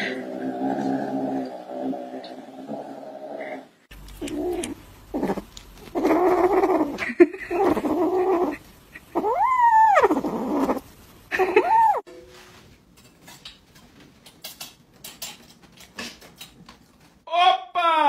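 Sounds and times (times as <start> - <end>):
cat growling: 2.9 - 12.0
kitten growling: 4.0 - 12.0
cat yowling: 9.1 - 10.8, 11.6 - 12.0.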